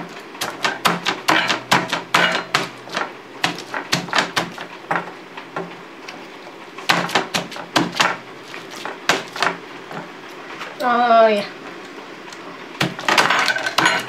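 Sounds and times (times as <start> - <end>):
masher pounding avocado on board: 0.4 - 5.7, 6.9 - 10.0, 12.8 - 14.0.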